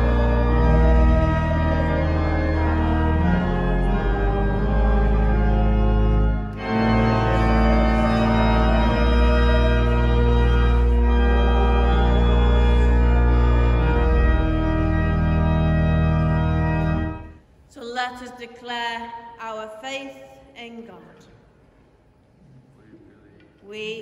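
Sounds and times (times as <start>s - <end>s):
church organ chords: 0.0s - 17.4s.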